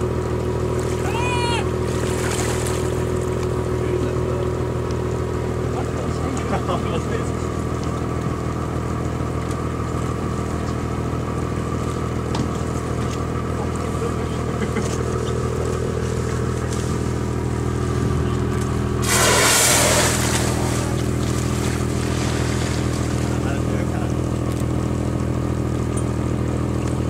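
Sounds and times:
boat engine idling: 0.0 - 27.0
whale blowing exhale: 19.0 - 21.1.

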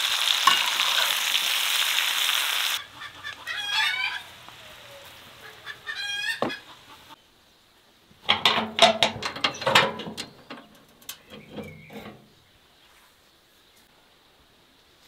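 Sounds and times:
metal grill lid clanks and rattles: 8.2 - 12.4
short squeak: 11.2 - 12.4.

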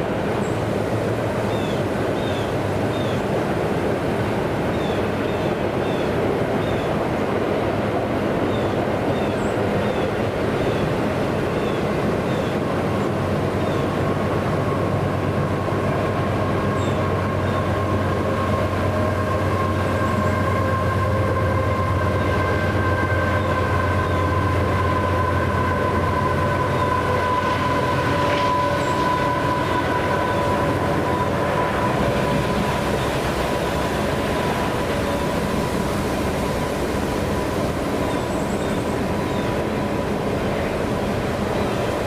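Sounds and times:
train wheels on rails: 13.8 - 42.0
thin whine: 17.6 - 42.0.

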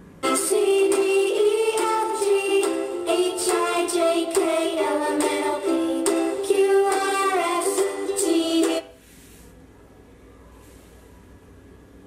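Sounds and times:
music through small speaker: 0.0 - 9.0.

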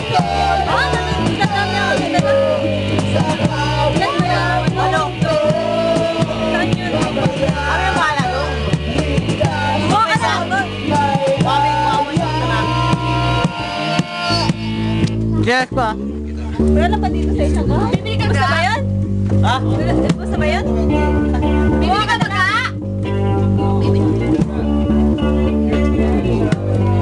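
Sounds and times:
man singing through a microphone: 0.0 - 14.5
loud amplified music with beat: 0.0 - 17.0, 17.8 - 27.0.

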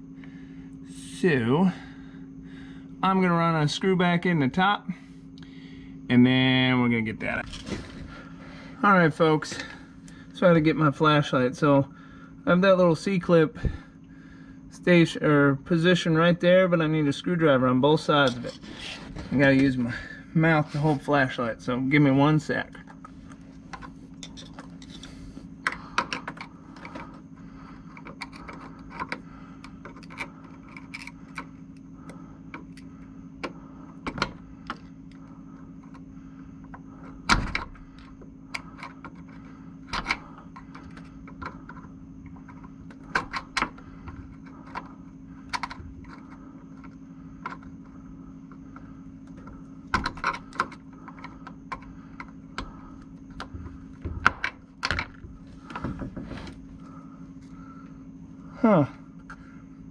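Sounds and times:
steady low hum: 0.0 - 59.9
screwdrivers clicking and scraping metal: 18.2 - 19.8, 22.6 - 35.2, 37.0 - 47.8, 48.5 - 53.5.

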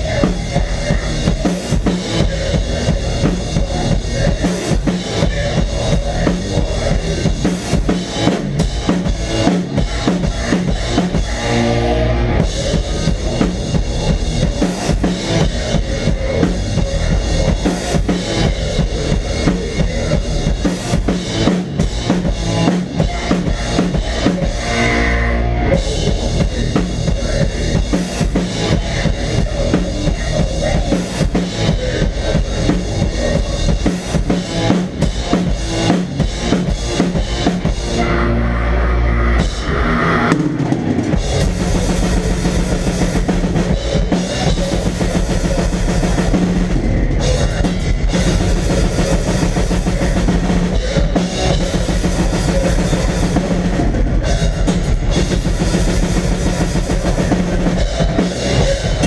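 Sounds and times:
drum kit played fast: 0.0 - 38.2, 39.3 - 59.0
distorted electric guitar: 0.0 - 59.0.

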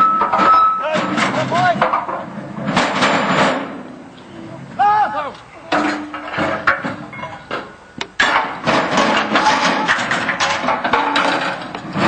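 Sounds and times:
metal clattering: 0.0 - 3.9, 5.7 - 12.0
voices: 4.1 - 7.8.

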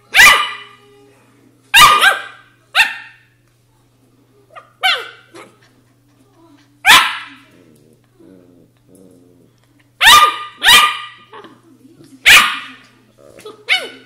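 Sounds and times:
puppies barking: 0.1 - 0.7, 1.8 - 3.2, 6.9 - 7.4, 10.0 - 11.3, 12.3 - 12.8
puppies grumbling: 5.3 - 9.9, 13.1 - 13.8.

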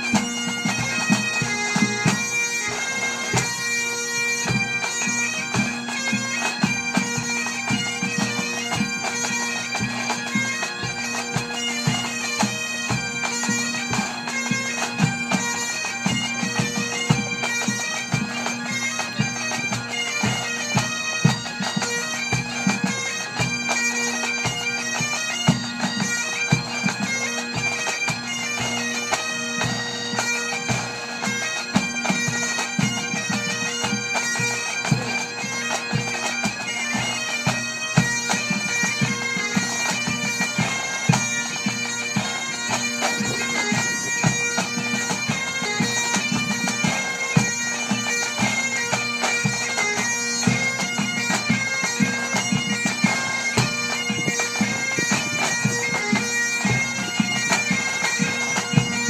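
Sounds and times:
bagpipes playing a melody: 0.0 - 59.0
drums beating: 42.7 - 45.6.

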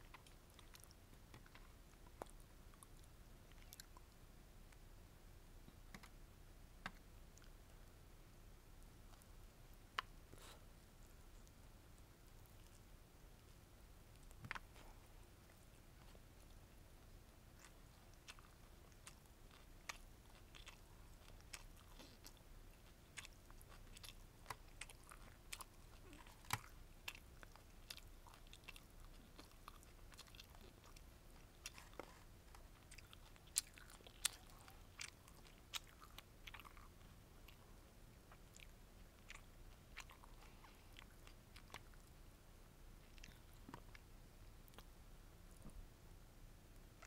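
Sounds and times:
chewing and biting food: 0.0 - 4.1, 14.1 - 42.2, 43.0 - 44.9.

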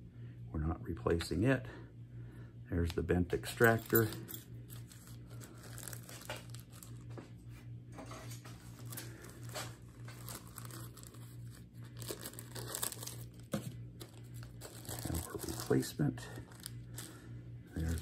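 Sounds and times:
steady low hum: 0.0 - 18.0
plastic bag crinkling: 3.6 - 7.2, 8.5 - 18.0.

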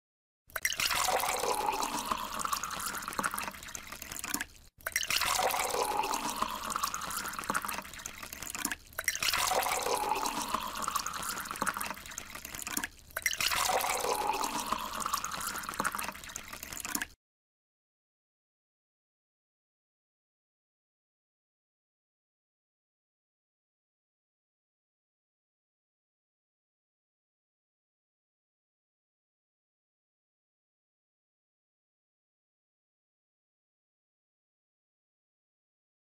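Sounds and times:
water pouring into bottle: 0.5 - 17.2.

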